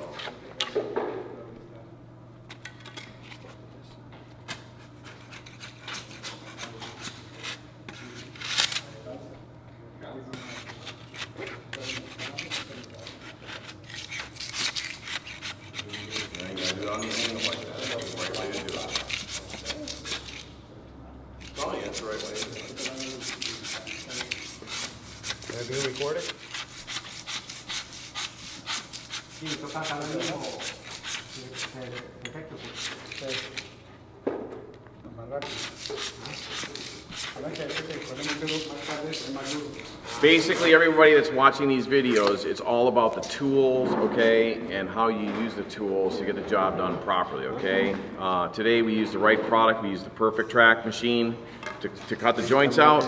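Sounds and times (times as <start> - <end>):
floor scraper rasping on concrete: 10.4 - 20.4, 21.4 - 32.0, 35.4 - 41.2.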